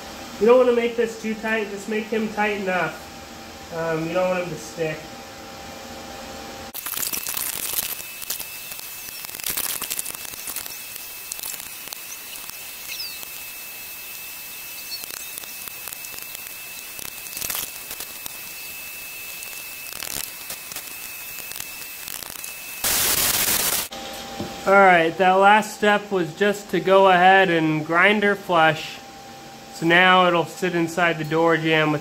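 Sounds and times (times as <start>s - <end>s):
angle grinder grinding metal: 6.8s - 23.9s.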